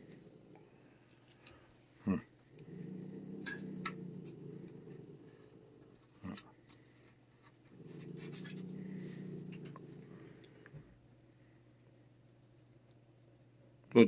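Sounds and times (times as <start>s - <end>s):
cat growling: 0.0s - 1.0s, 2.0s - 6.6s, 7.7s - 10.8s.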